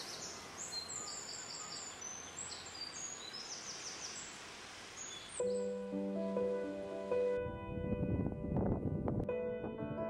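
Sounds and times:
steady hiss: 3.0s - 7.4s.

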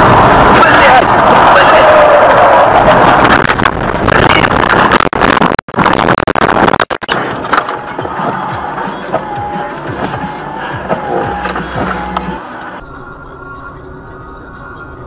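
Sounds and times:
car road and engine noise: 0.0s - 15.0s.

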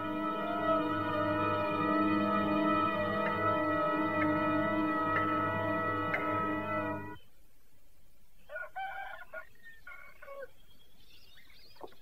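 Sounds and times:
music sting: 0.0s - 7.2s
rooster crowing: 0.0s - 7.2s, 8.5s - 10.4s
faint high bird chirps: 8.4s - 12.0s.

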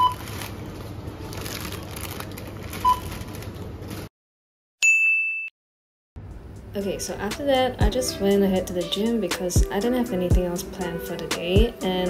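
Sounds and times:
high electronic ding: 4.8s - 5.5s.

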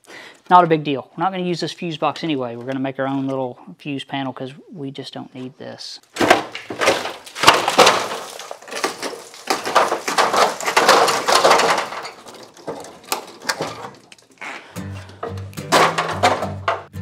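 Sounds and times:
rusty pieces knocking and falling: 6.1s - 14.4s, 15.0s - 17.0s
rusted metal crunching and scraping: 6.2s - 17.0s.

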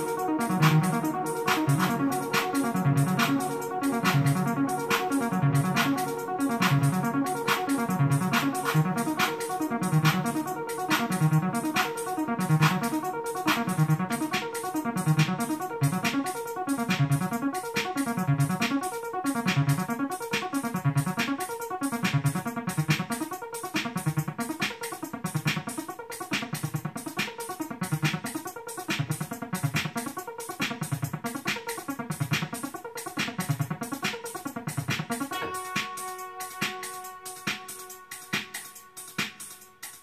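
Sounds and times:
repeating bass line: 0.0s - 17.5s
keyboard synth parts: 0.0s - 23.4s, 35.2s - 39.8s
electronic music beat: 0.0s - 40.0s.

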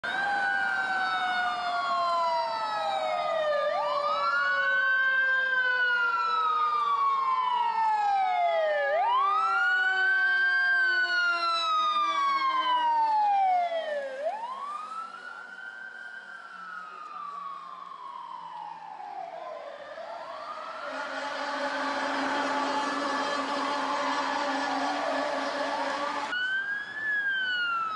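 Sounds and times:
fire engine siren wailing: 0.0s - 27.9s
siren tone sliding downward: 18.2s - 27.9s.

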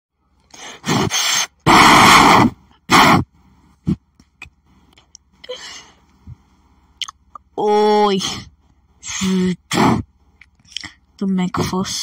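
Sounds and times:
person's breathy bursts: 0.5s - 4.0s.

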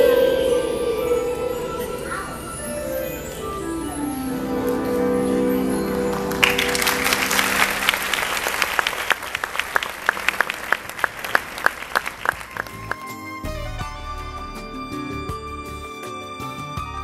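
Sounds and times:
held musical chord: 0.0s - 17.0s
audience clapping: 4.6s - 13.5s.

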